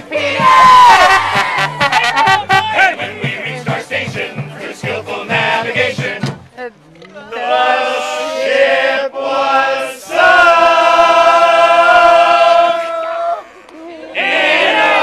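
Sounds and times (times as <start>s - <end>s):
men singing drinking song: 2.6s - 6.4s.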